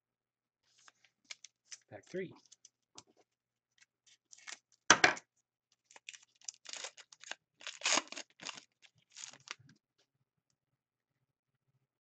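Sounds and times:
wrapper crinkling and tearing: 4.2s - 4.7s, 5.8s - 9.6s
scissors cutting foil pack: 6.0s - 9.6s.

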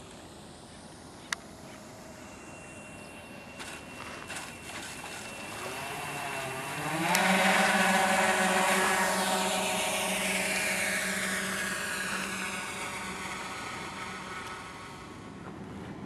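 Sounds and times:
electric motors whining: 0.0s - 15.6s.

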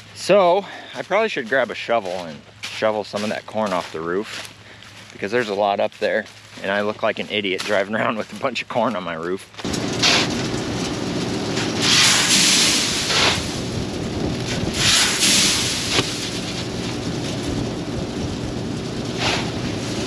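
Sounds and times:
low machine hum: 0.0s - 20.0s
shovel scraping metal roof: 9.6s - 13.8s, 14.5s - 16.7s, 19.1s - 20.0s
corn kernels pouring: 11.8s - 13.7s, 14.7s - 16.5s.

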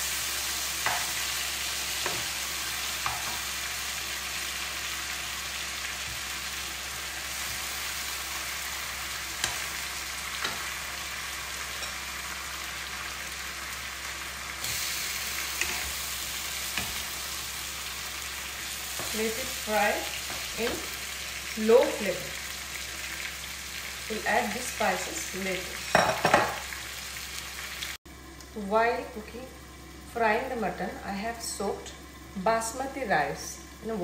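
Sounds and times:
meat sizzling in oil: 0.0s - 28.1s
spatula tapping wok: 0.8s - 1.2s, 3.0s - 3.4s.

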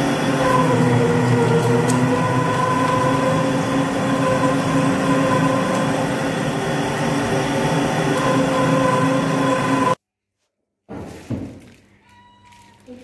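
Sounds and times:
electric meat grinder motor hum: 0.0s - 10.0s.

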